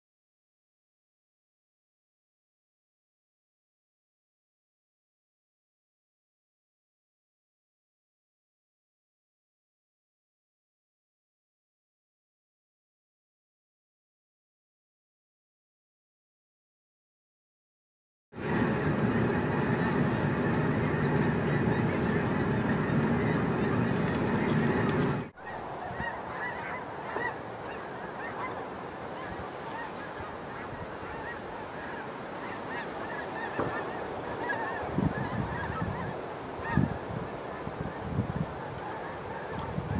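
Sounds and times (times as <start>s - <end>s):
low rumble: 18.4s - 25.8s
flock of geese honking: 18.4s - 39.9s.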